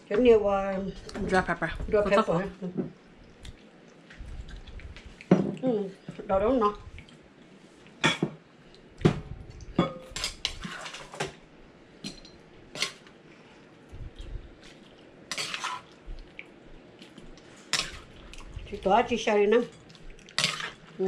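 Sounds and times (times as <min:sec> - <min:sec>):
dishes and utensils clinking: 0:09.8 - 0:11.4, 0:15.3 - 0:16.0, 0:19.7 - 0:20.8.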